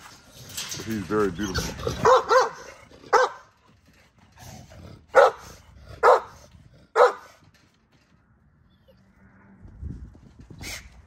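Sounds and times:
dog barking: 0:02.0 - 0:03.5, 0:05.1 - 0:06.4, 0:07.0 - 0:07.4.

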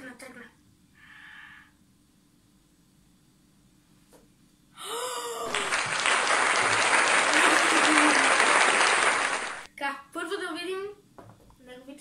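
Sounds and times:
applause and cheering: 0:05.4 - 0:09.7
excited voice: 0:07.2 - 0:08.6.

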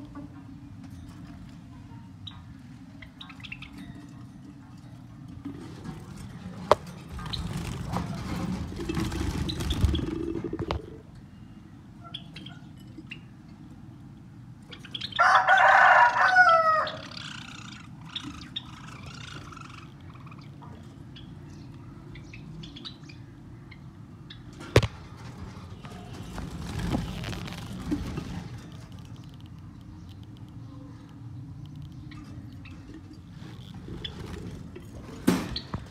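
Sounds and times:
low background noise: 0:00.0 - 0:35.9
rooster crowing: 0:15.2 - 0:17.1.

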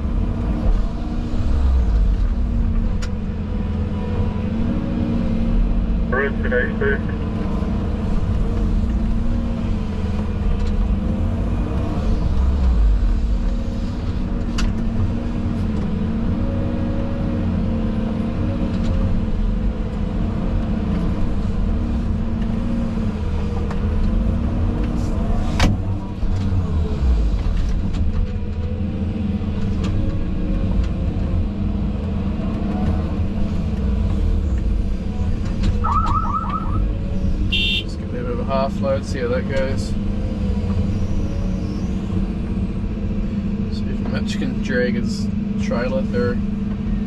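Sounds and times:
excavator diesel engine running: 0:06.0 - 0:10.6.

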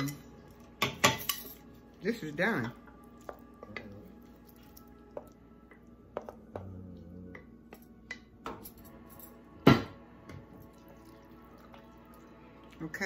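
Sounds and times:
metal cookware clinking: 0:00.0 - 0:01.7.

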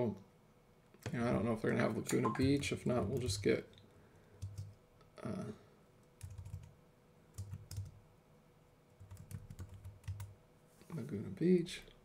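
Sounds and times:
typing on computer keyboard: 0:04.4 - 0:04.8, 0:06.2 - 0:06.7, 0:07.4 - 0:08.0, 0:09.0 - 0:10.3.

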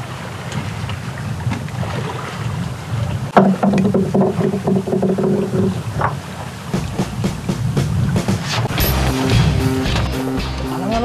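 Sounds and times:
wind buffeting microphone: 0:00.0 - 0:08.7
sea and boat noise: 0:00.0 - 0:11.0.

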